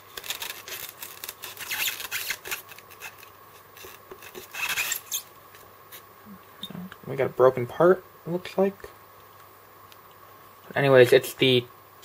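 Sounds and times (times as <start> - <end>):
foam rubbing and scraping: 0.0 - 5.3.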